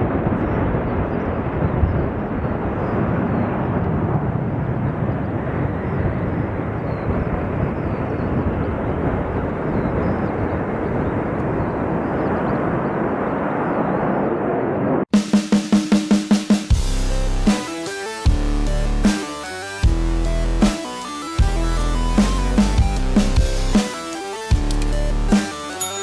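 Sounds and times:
jet engines rumbling: 0.0 - 15.1.

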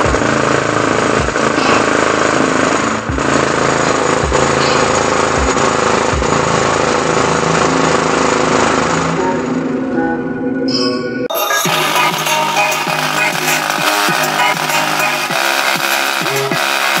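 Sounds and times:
bass-boosted music: 0.0 - 17.0
coins buzzing and rattling: 11.4 - 17.0.

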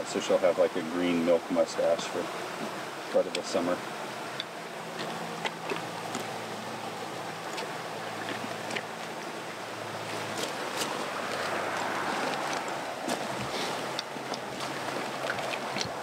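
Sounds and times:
stream rushing: 0.0 - 16.0
zipper and gear rustling: 10.0 - 16.0.

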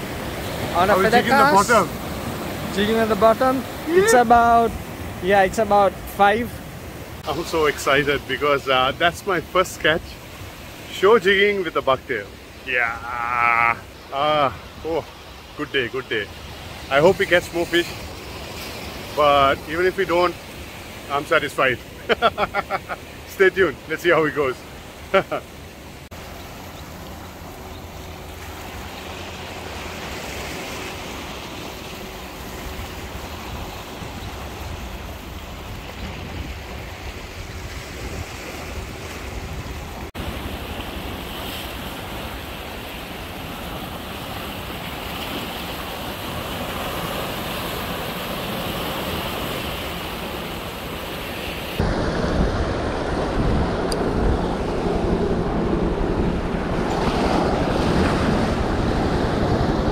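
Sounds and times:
surf washing over rocks: 0.0 - 59.9
wind buffeting microphone: 33.0 - 42.4, 51.6 - 59.9.

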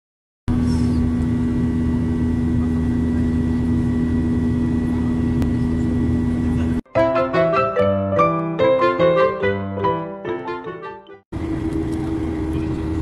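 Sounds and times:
airliner engines and rushing air: 0.5 - 6.8, 11.4 - 13.0
constant low hum: 0.5 - 6.8, 11.4 - 13.0.

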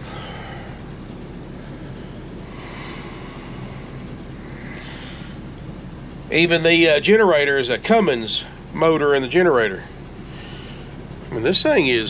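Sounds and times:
air conditioner air rush: 0.0 - 12.0
low hum: 0.0 - 12.0.

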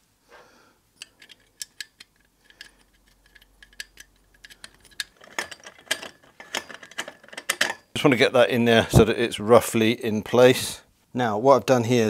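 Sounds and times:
small metallic clicks and clinks: 1.0 - 8.0.

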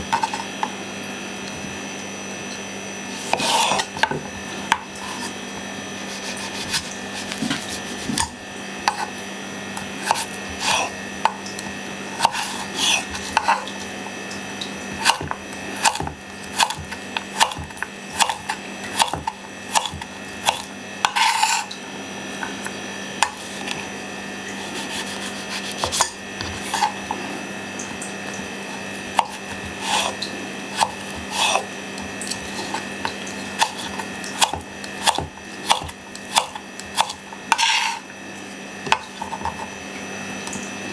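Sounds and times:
knife chopping on wooden board: 3.2 - 5.3, 6.1 - 9.1, 9.8 - 11.4, 12.2 - 13.7, 14.9 - 21.7, 24.7 - 27.2, 29.1 - 38.0, 38.8 - 39.7.

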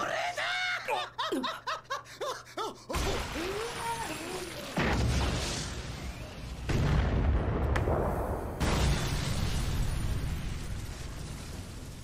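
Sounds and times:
heavy booming blasts: 4.8 - 12.0.

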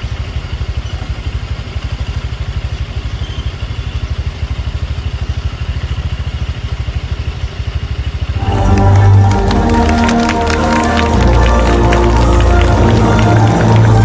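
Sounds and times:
engine idling: 0.0 - 8.5.

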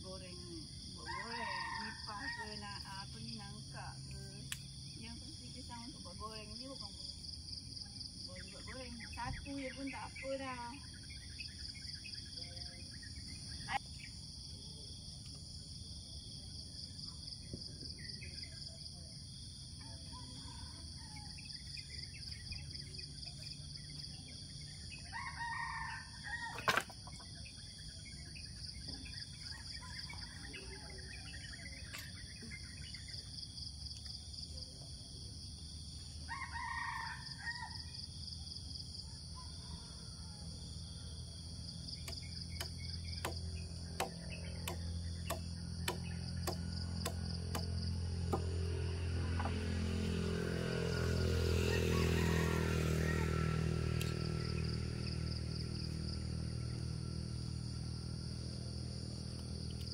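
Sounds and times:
crickets chirping: 0.0 - 59.9
rooster crowing: 1.0 - 2.9, 25.0 - 26.9, 36.2 - 38.1, 39.0 - 41.2, 47.8 - 55.4.

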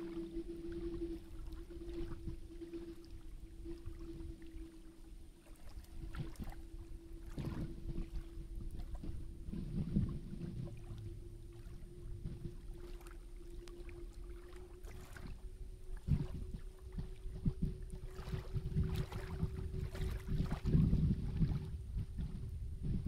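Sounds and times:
small waves lapping: 0.0 - 22.4
steady hum: 0.0 - 23.0
wind buffeting microphone: 5.6 - 23.0.

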